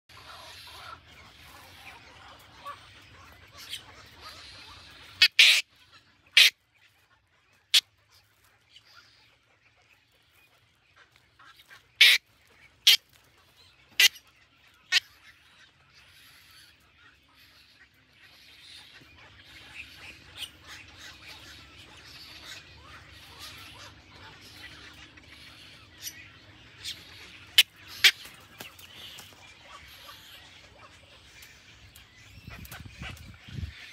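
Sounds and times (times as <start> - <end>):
bird nestlings squawking: 0.1 - 6.5, 19.6 - 33.9.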